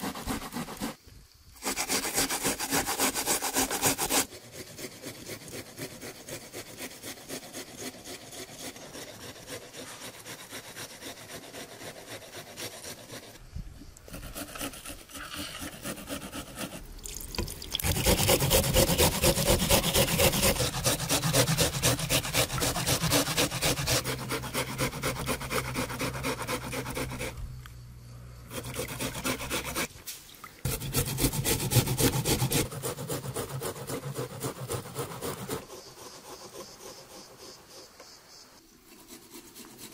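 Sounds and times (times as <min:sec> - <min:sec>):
onion rasping on metal grater: 0:14.1 - 0:27.4, 0:28.5 - 0:29.9, 0:30.7 - 0:35.7.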